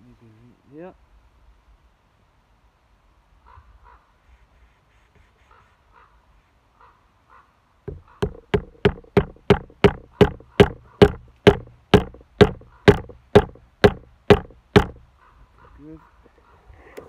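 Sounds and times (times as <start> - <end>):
wooden baton knocking on knife: 7.9 - 15.1.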